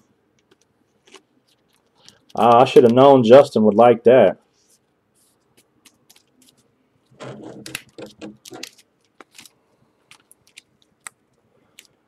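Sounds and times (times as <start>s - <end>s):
cards being shuffled: 4.6s - 12.0s.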